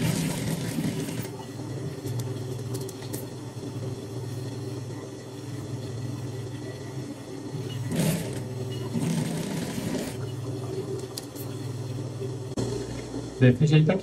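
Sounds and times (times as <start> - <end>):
sewing machine motor humming: 0.0 - 1.4, 7.5 - 10.9.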